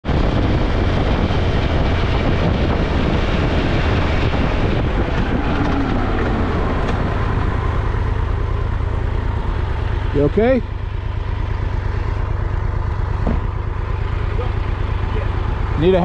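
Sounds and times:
wind buffeting microphone: 0.0s - 9.8s
motorcycle engine running: 0.0s - 16.0s.

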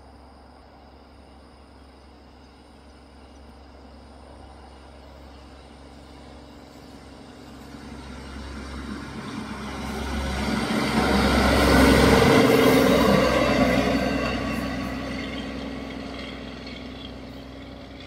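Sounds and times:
wheels on rail track: 0.0s - 18.0s
diesel engine: 1.8s - 18.0s.

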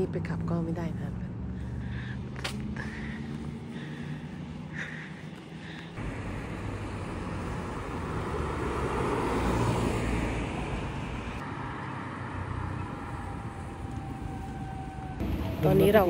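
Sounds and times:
car driving past: 6.0s - 16.0s.

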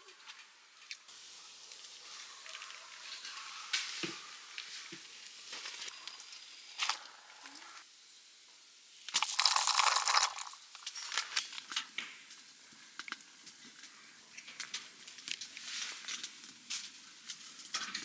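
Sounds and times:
utensil stirring in metal pot: 9.1s - 11.1s
noodles dropped into boiling water: 9.1s - 12.0s.

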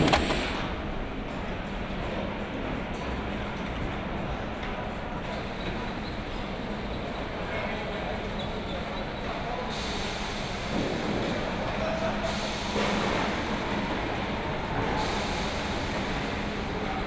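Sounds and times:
assembly line machinery: 0.0s - 0.8s.

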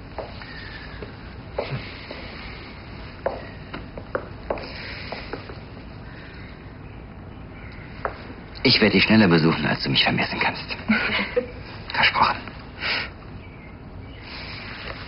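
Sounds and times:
footsteps on hard floor: 3.2s - 5.6s.

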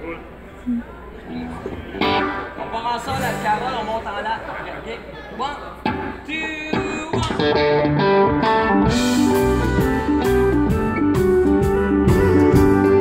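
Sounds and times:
electric guitar playing: 1.3s - 4.0s, 5.8s - 13.0s
drums: 1.6s - 3.8s, 5.8s - 13.0s.

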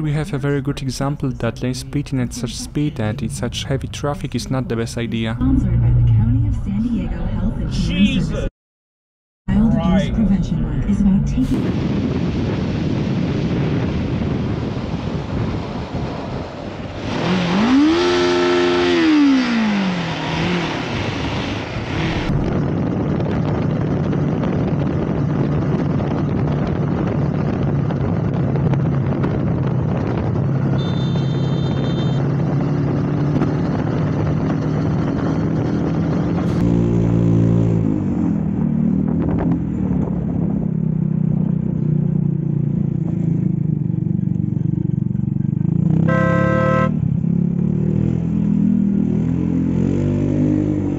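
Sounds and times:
road and wind noise: 0.0s - 8.5s, 9.5s - 50.9s
motorcycle engine revving: 17.0s - 50.9s.

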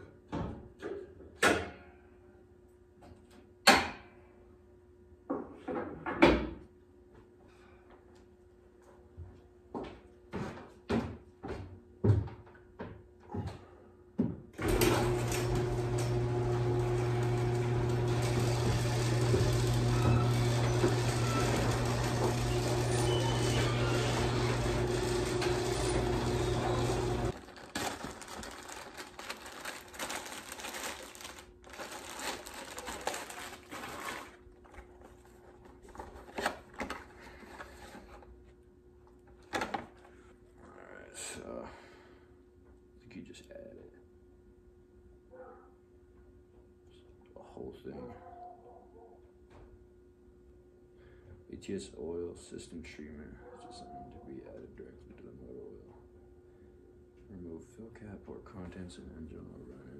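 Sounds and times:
garage door opener motor whirring: 14.6s - 27.5s.

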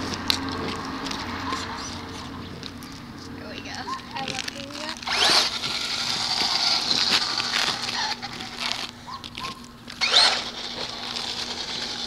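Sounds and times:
electric toy car motor whining: 4.2s - 12.0s.

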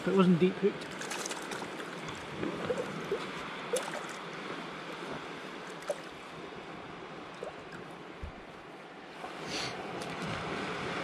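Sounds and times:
surf on a sandy beach: 0.0s - 11.0s.

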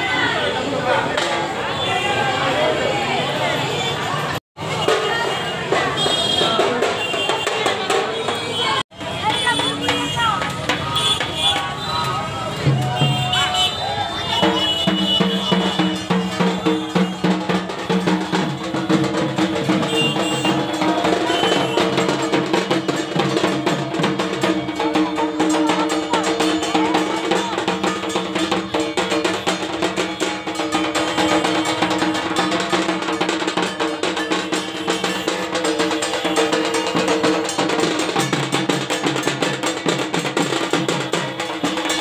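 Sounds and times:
fast dense drumming: 14.3s - 42.0s
clanking metal percussion: 14.4s - 42.0s.

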